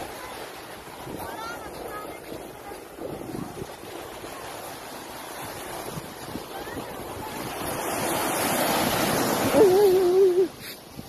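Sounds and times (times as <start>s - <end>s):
ocean waves breaking: 0.0s - 11.0s
wind buffeting microphone: 0.0s - 11.0s
person crying out: 9.5s - 10.5s.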